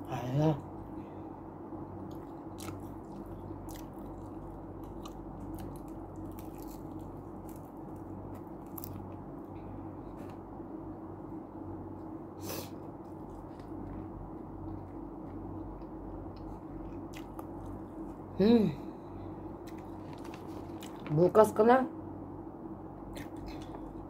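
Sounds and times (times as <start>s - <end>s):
steady low hum: 0.0s - 24.0s
person chewing crunchy food: 2.0s - 10.4s, 12.9s - 18.2s.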